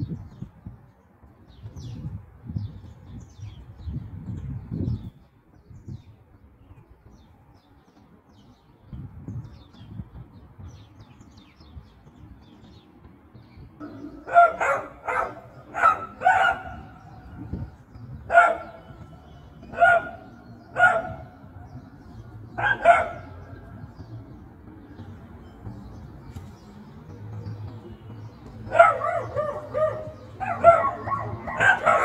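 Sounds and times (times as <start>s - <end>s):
dog barking: 13.8s - 16.9s, 18.3s - 18.8s, 19.7s - 21.3s, 22.6s - 23.5s, 28.7s - 32.0s.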